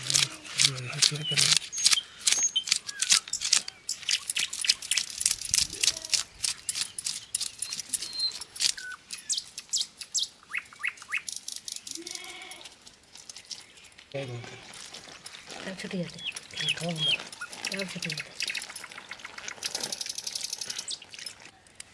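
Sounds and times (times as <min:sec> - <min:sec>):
knife scraping fish scales: 0:00.0 - 0:08.8
birds chirping: 0:00.0 - 0:21.9.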